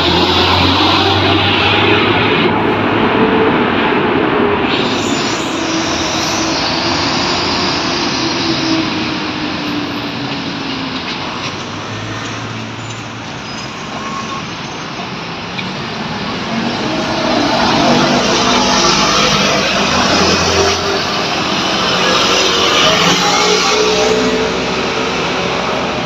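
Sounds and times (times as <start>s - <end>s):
road traffic rushing: 0.0s - 26.0s
vehicle engine passing: 15.9s - 26.0s.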